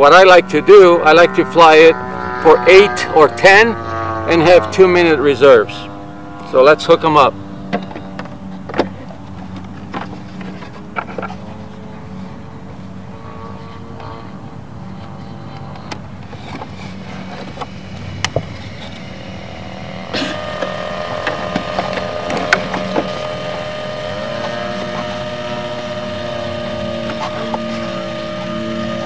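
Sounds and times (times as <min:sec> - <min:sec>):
steady engine-like drone: 0:00.0 - 0:29.0.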